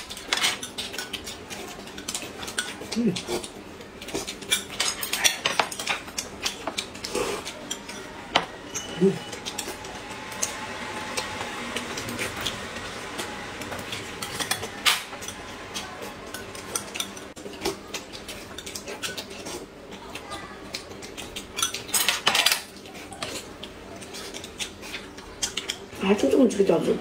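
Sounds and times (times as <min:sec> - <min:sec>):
people eating: 0:00.0 - 0:27.0
chopsticks clicking on plates: 0:00.1 - 0:10.6, 0:13.2 - 0:25.8
tableware clatter: 0:21.6 - 0:22.7.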